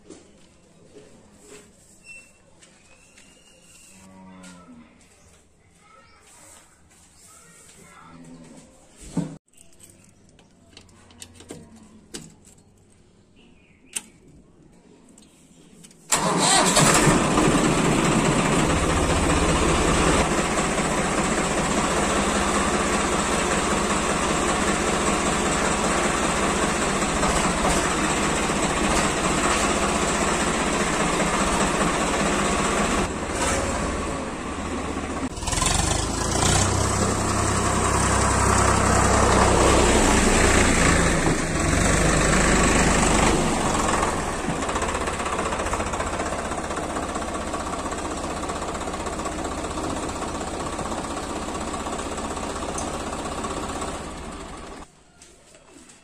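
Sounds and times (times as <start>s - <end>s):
tractor engine starting: 16.0s - 54.9s
tractor engine revving: 16.1s - 54.9s.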